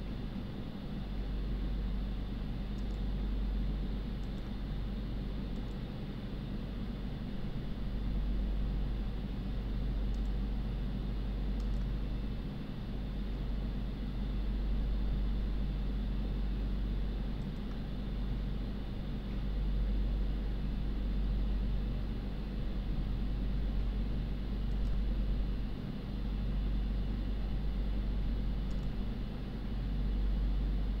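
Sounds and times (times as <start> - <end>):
low rumble and hum: 0.0 - 31.0
faint clicks: 11.6 - 11.9.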